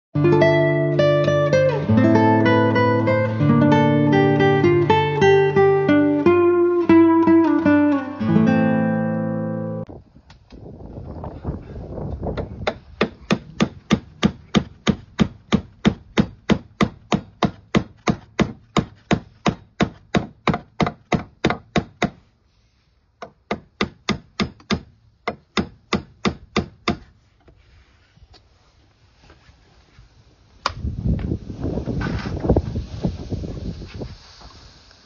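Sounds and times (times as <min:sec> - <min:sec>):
hammer striking wooden boards: 0:12.4 - 0:22.2, 0:23.2 - 0:27.1.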